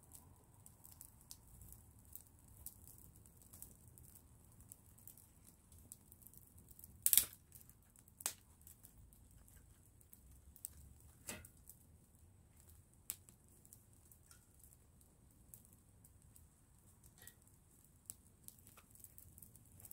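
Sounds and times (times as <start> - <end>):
wood fire crackling and popping: 0.0 - 19.9.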